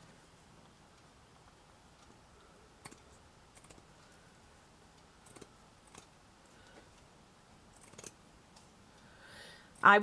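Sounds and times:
scissors snipping thread: 7.8 - 8.2.

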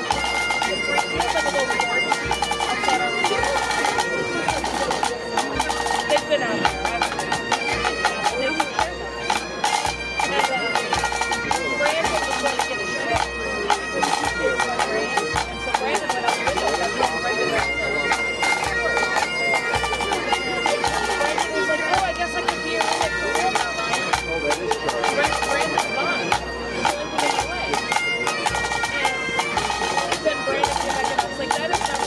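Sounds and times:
bagpipes playing: 0.0 - 32.0.

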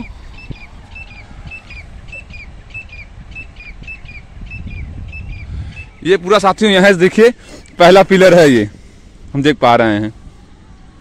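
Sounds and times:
small bird chirping: 0.0 - 6.2
steady low rumble: 0.0 - 7.0.

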